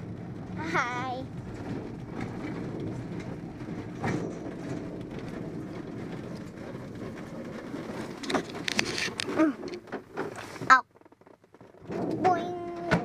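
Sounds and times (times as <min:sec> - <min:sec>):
glider wheel rumbling over grass: 0:00.0 - 0:13.0.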